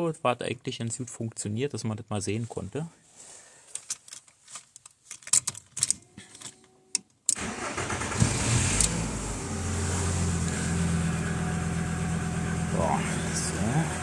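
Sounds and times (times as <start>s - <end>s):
car engine starting and idling: 7.3s - 14.0s.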